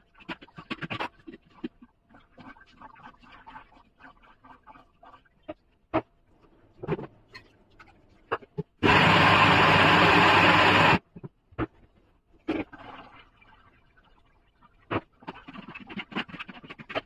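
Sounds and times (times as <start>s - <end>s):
mixer grinder running: 8.8s - 11.0s.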